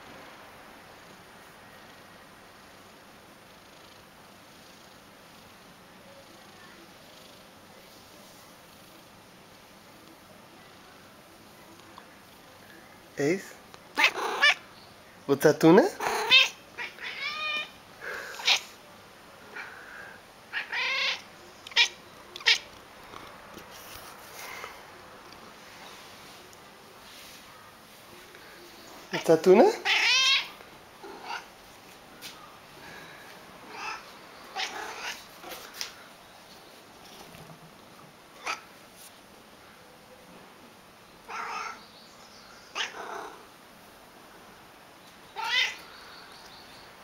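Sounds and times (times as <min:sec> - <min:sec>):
cat meowing: 0:14.0 - 0:14.6, 0:16.0 - 0:18.7, 0:20.5 - 0:22.7, 0:29.8 - 0:31.5, 0:33.7 - 0:34.0, 0:34.6 - 0:35.3, 0:41.2 - 0:41.8, 0:42.7 - 0:43.4, 0:45.3 - 0:45.8.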